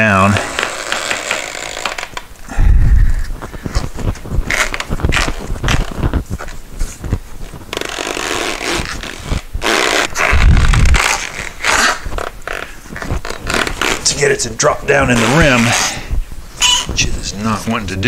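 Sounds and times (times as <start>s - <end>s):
rubber tire scraping against rim: 0.0s - 2.3s, 3.0s - 18.0s
heavy low thump: 2.5s - 3.4s, 10.4s - 11.0s.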